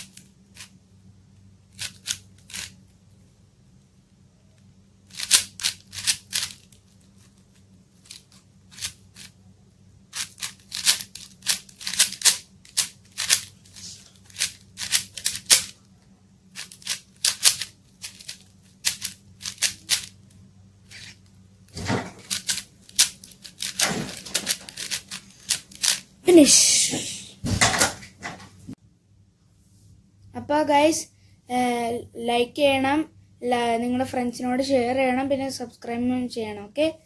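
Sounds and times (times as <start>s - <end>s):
puzzle cube layers clacking: 10.1s - 15.7s, 16.6s - 20.2s, 22.2s - 26.1s.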